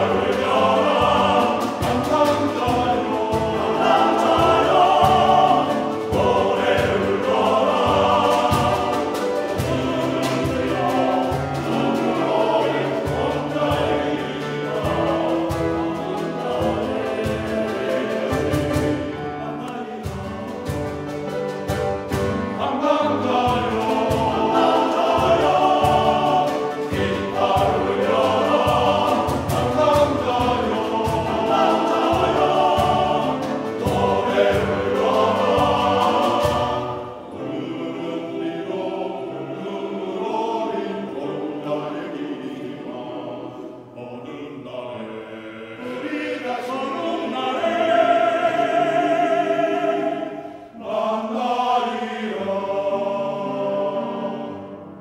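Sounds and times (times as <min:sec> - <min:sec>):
snare drum and cymbal: 0:00.0 - 0:37.3
men's choir singing: 0:00.0 - 0:55.0
piano: 0:00.0 - 0:55.0.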